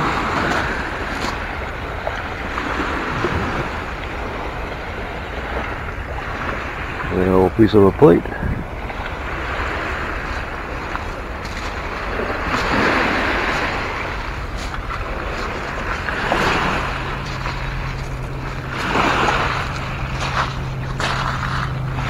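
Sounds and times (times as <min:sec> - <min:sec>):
wind noise on microphone: 0:00.0 - 0:07.2, 0:08.2 - 0:22.0
steady low hum: 0:00.0 - 0:22.0
waves washing onto pebble shore: 0:00.0 - 0:22.0.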